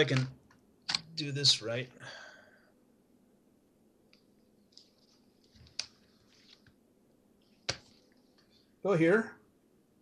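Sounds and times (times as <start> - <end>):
tablet being handled and tapped: 0.1 - 1.1, 4.1 - 6.8, 7.6 - 8.5.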